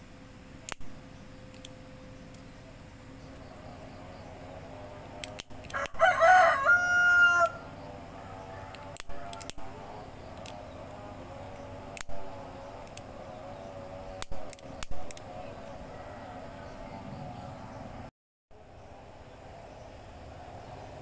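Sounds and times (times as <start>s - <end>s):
sharp clicks: 0.6s - 2.5s, 5.0s - 6.0s, 8.7s - 13.2s, 14.1s - 15.8s
rooster crowing: 5.7s - 10.0s, 15.6s - 17.5s.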